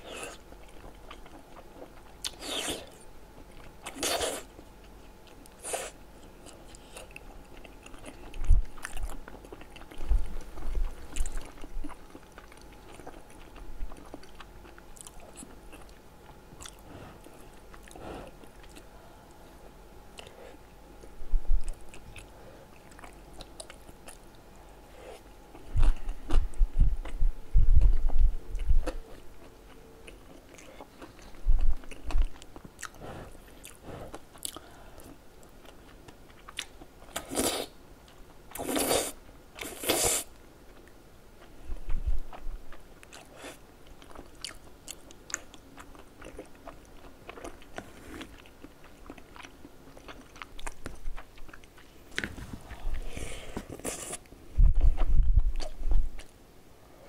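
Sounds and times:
wet chewing and biting: 0:06.4 - 0:18.9, 0:42.1 - 0:56.4.

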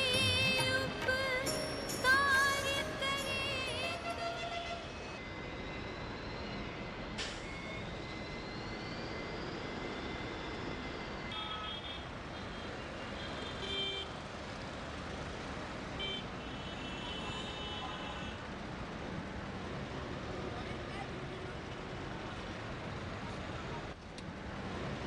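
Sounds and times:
street traffic noise: 0:00.0 - 0:25.0
vehicle horns: 0:03.8 - 0:05.2, 0:11.3 - 0:14.2, 0:16.0 - 0:18.4.

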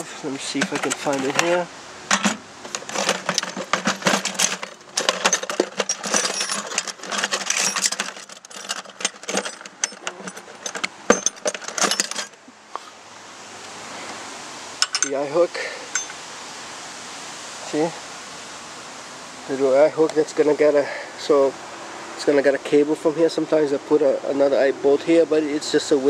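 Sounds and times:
metal hardware clinking in bucket: 0:00.0 - 0:12.4, 0:14.8 - 0:16.2.

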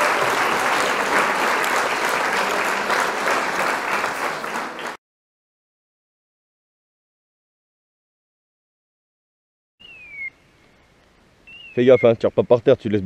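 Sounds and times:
crowd clapping: 0:00.0 - 0:05.0.

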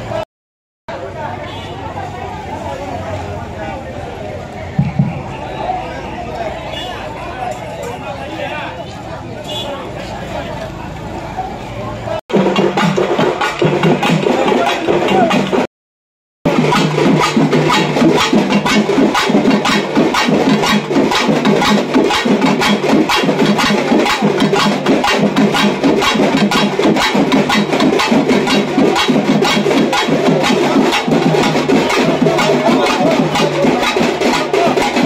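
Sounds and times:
drums beaten in fast rhythm: 0:04.8 - 0:05.4, 0:12.3 - 0:15.7, 0:16.4 - 0:35.0.

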